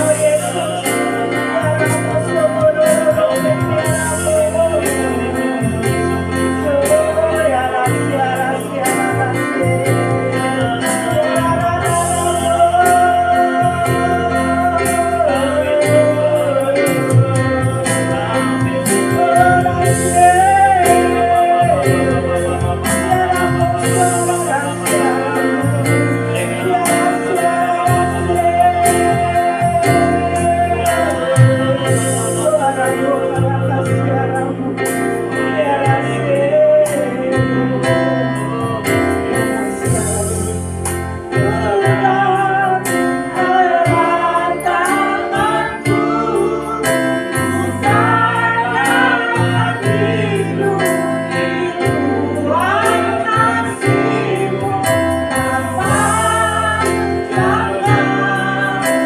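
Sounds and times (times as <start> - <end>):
instrumental accompaniment chords: 0.0 - 59.0
woman singing into a microphone: 41.4 - 59.0.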